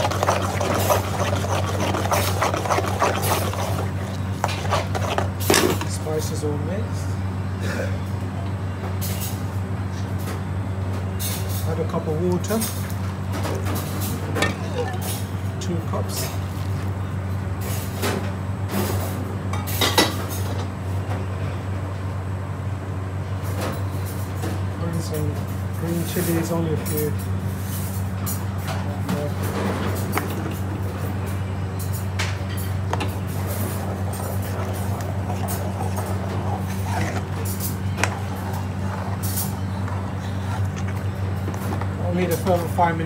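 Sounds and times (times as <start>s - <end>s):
metal spoon scraping a pan: 0.0s - 5.8s, 33.5s - 40.8s
steady low hum: 0.0s - 43.0s.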